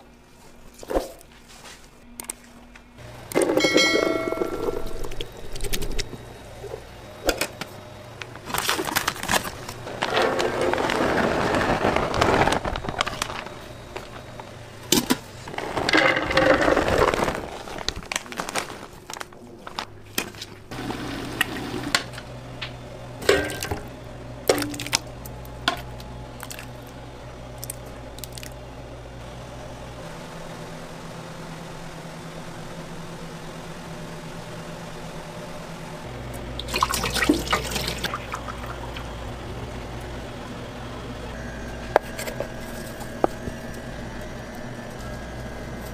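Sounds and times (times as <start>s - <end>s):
machine hum: 0.0s - 45.9s
liquid sloshing and pouring: 36.6s - 39.1s.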